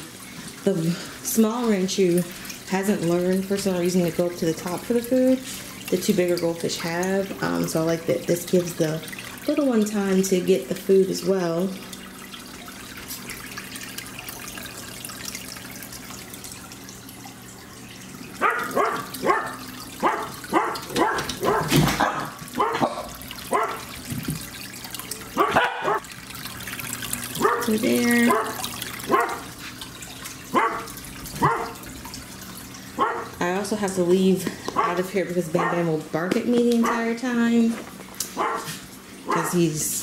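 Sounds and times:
dog barking: 18.4 - 23.8, 25.4 - 26.0, 27.4 - 27.7, 28.3 - 29.5, 30.5 - 31.8, 33.0 - 33.3, 35.6 - 35.8, 36.8 - 37.0, 38.4 - 39.6.

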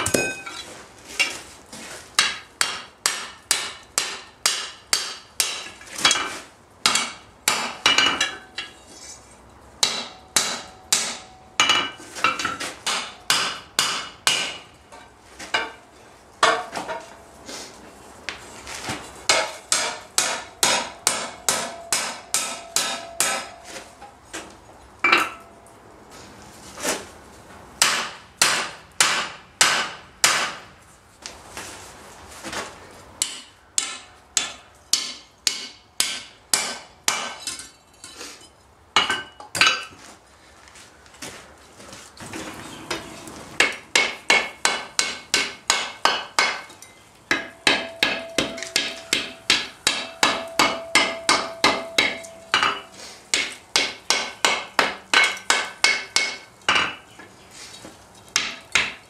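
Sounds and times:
hammer striking hot iron on anvil: 0.0 - 0.6, 2.2 - 8.8, 9.8 - 15.8, 19.3 - 23.8, 27.8 - 30.6, 33.2 - 37.7, 42.9 - 57.0, 58.4 - 59.0.

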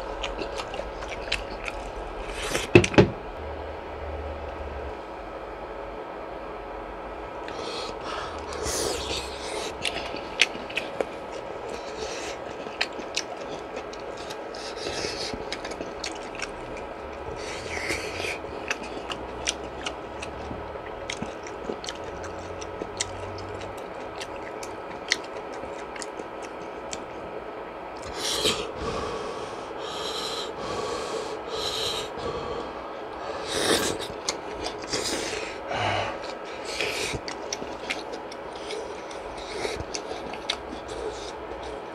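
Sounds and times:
chewing: 0.0 - 2.7, 7.4 - 27.1, 33.2 - 41.9.

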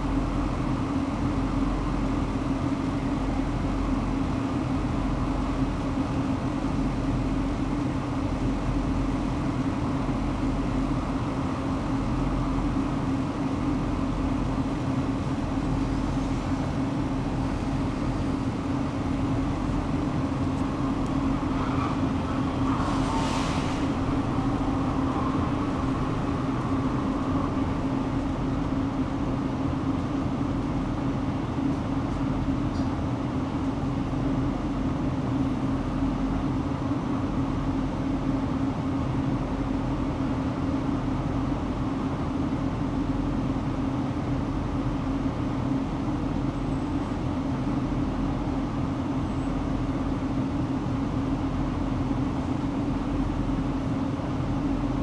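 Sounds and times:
wheels rumbling on rails: 0.0 - 43.9, 44.8 - 55.0
tram motor hum: 0.0 - 55.0
rising squeal: 17.9 - 29.8
brief hiss: 22.7 - 24.3.

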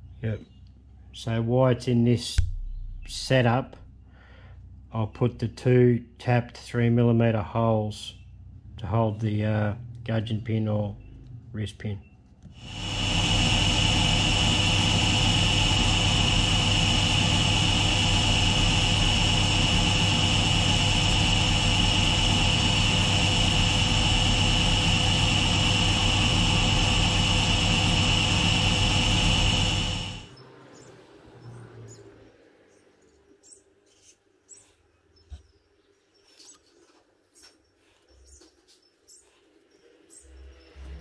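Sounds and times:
milling machine spindle whining: 12.6 - 30.3.

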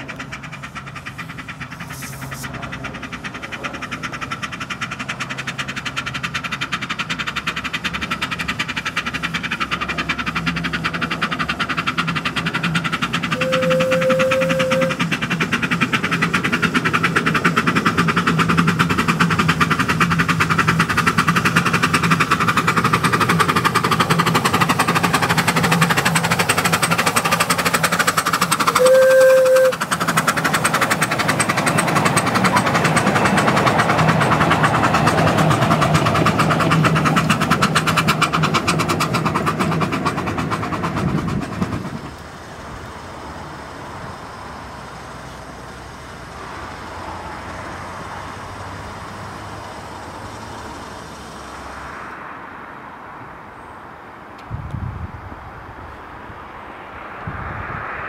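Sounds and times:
steam locomotive chuffing: 0.0 - 53.7
steam whistle blasts: 13.4 - 15.0, 28.7 - 29.8.

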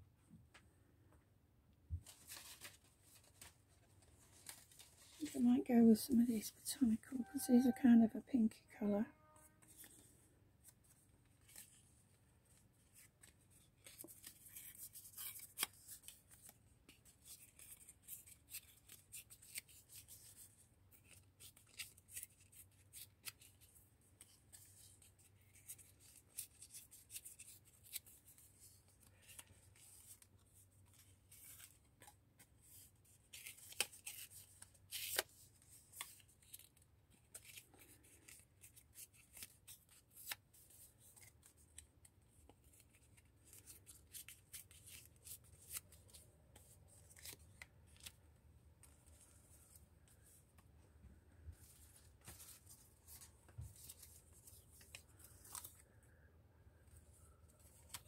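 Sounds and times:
thin paper rustling: 2.0 - 5.4, 51.6 - 55.8.

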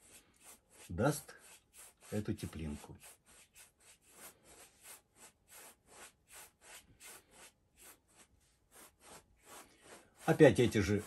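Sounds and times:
paintbrush rubbing strokes: 0.0 - 11.0.

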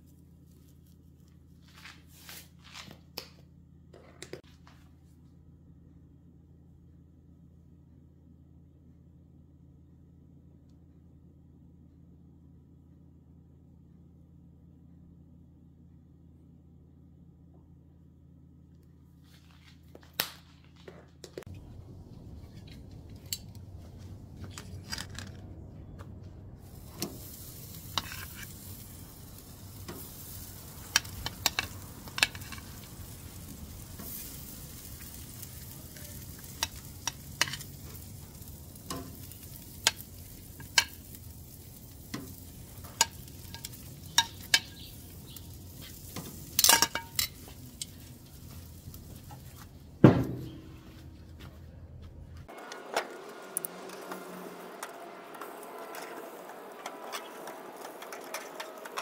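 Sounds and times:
lobster tails sizzling on grill: 26.6 - 49.5, 53.1 - 59.0
metal tongs clinking on grate: 26.8 - 48.0.

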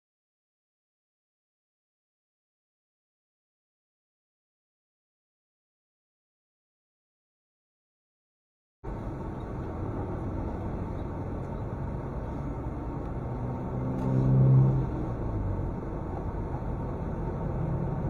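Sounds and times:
road traffic rumble: 8.8 - 18.0
vehicle engine passing close: 8.9 - 18.0.

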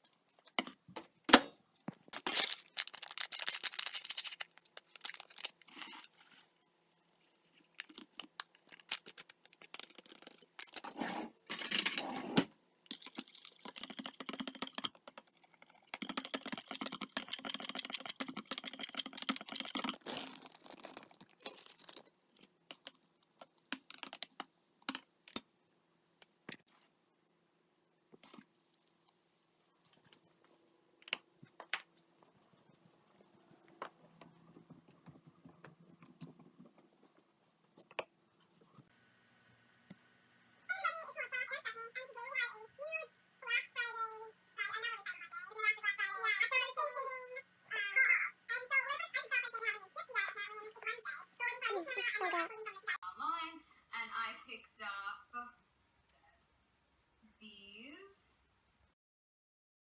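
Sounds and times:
knife stirring in ceramic mug: 12.9 - 20.0.

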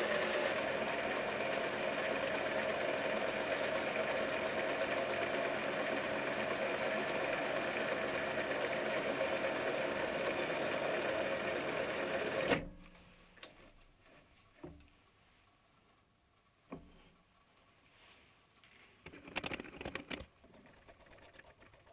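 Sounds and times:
lathe whirring: 0.0 - 12.6.

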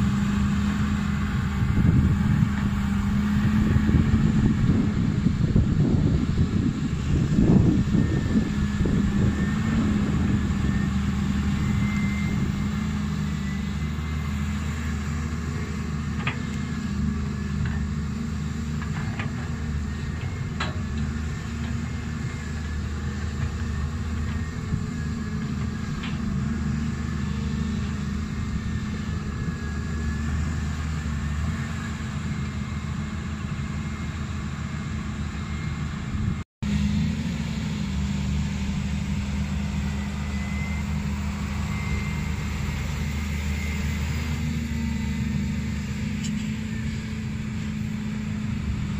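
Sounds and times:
excavator diesel engine running: 0.0 - 48.9.

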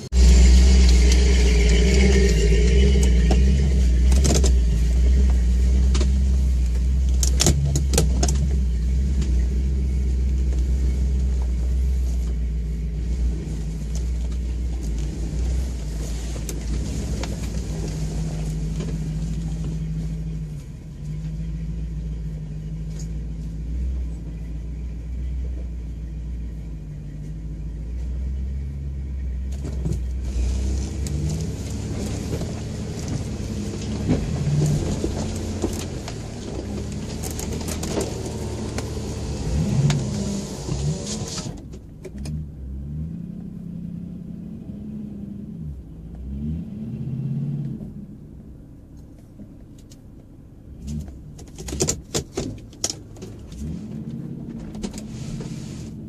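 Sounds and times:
off-road vehicle engine running: 0.0 - 56.0.

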